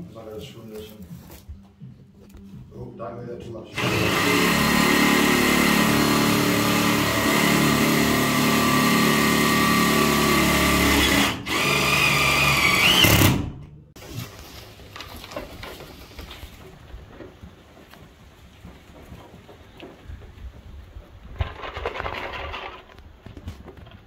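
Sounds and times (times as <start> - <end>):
power drill driving screw: 3.8 - 13.6.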